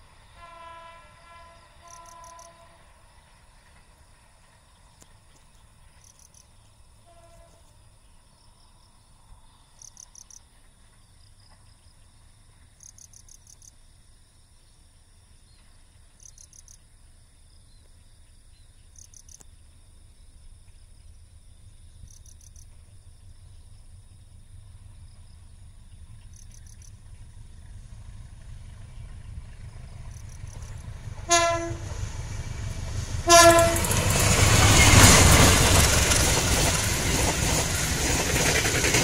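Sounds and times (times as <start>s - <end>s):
high insect hum: 0.0s - 35.7s
crickets chirping: 0.0s - 39.0s
faint horn toot: 0.4s - 2.8s, 7.0s - 7.7s, 31.3s - 31.9s.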